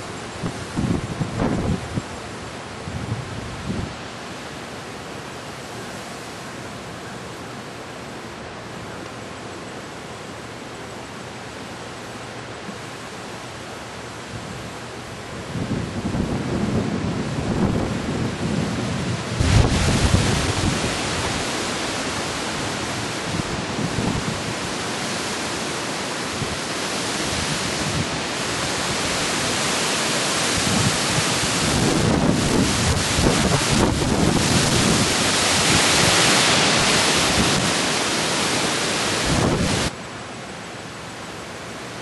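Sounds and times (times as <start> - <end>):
wind buffeting microphone: 0.0 - 2.2, 14.3 - 25.2, 26.3 - 39.9
wind rushing through trees: 0.0 - 42.0.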